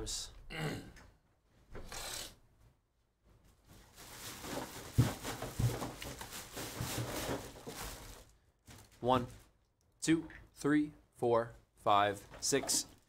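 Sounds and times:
rustling handling noise: 0:03.2 - 0:09.6.

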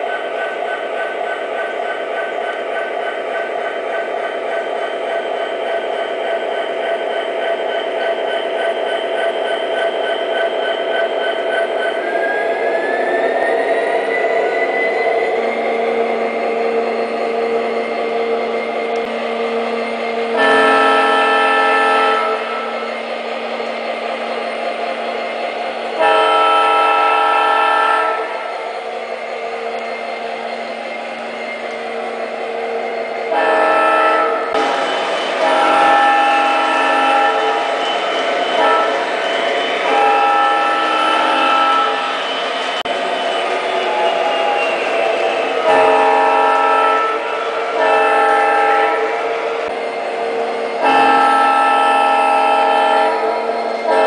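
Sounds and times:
multi-chime air horn blasts: 0:20.4 - 0:22.7, 0:38.3 - 0:42.1, 0:50.8 - 0:54.0.

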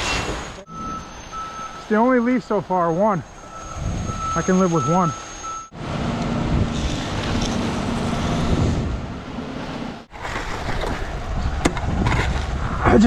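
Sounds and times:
truck engine humming: 0:00.4 - 0:10.2.

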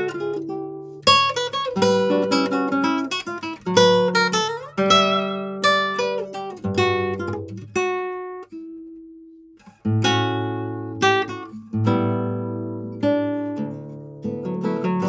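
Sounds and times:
fingerstyle classical guitar: 0:00.0 - 0:15.0.

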